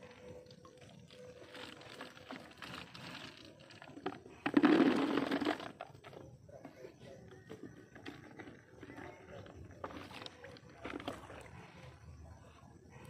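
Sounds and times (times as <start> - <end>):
rattling and splashing into bucket: 0.0 - 6.4, 7.5 - 11.8.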